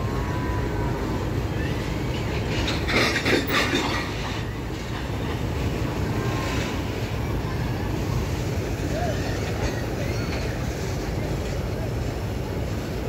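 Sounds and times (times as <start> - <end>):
freight train wheels rumbling: 0.0 - 13.0
metallic clatter: 2.3 - 5.4.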